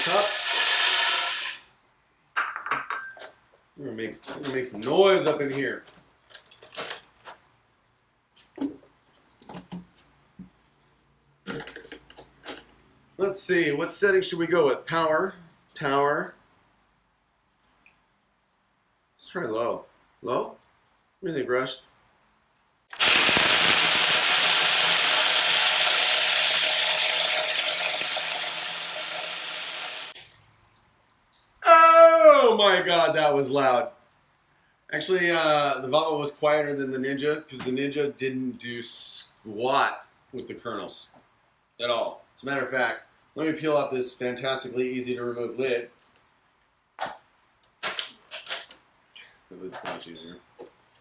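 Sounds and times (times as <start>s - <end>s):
blenders grinding popcorn kernels: 0.0s - 1.7s, 22.9s - 30.2s.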